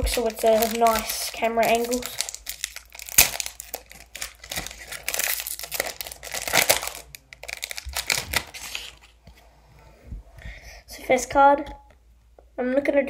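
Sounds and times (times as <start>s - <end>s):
foil wrapper tearing and crinkling: 0.0s - 9.2s.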